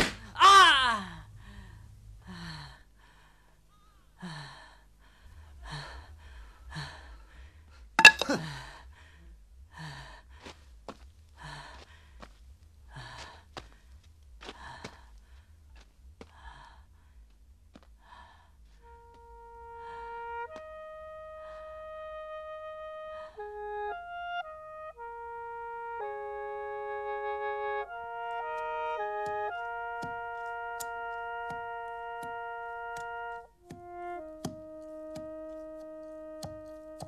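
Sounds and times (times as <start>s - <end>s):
soft woodwind film music: 18.8s - 37.0s.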